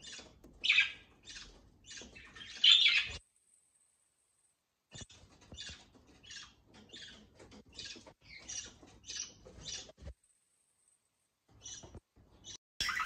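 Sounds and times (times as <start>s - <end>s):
budgerigars chirping: 0.0s - 3.2s, 5.0s - 9.9s, 11.6s - 13.0s.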